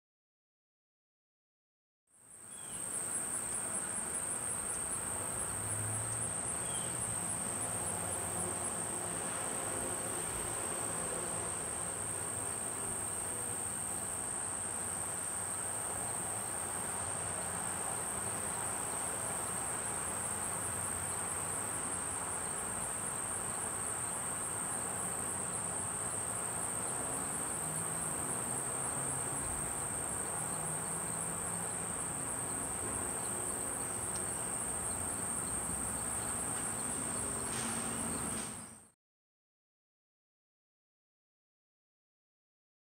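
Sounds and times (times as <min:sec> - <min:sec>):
insects trilling: 0:02.2 - 0:38.8.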